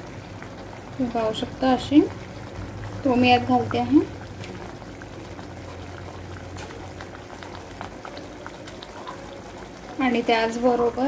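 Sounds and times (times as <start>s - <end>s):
gravy bubbling in a pan: 0.0s - 11.0s.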